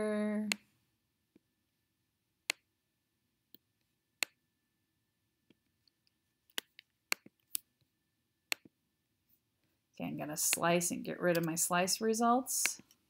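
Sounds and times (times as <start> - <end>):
computer mouse clicking: 10.3 - 11.8.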